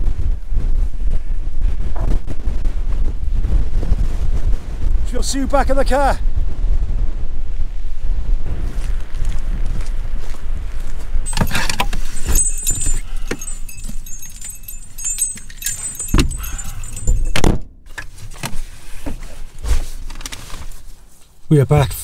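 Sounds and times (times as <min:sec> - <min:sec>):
wind buffeting microphone: 0:00.0 - 0:17.6
metal jingling: 0:11.3 - 0:18.4
gear rustling and clattering: 0:11.3 - 0:18.7.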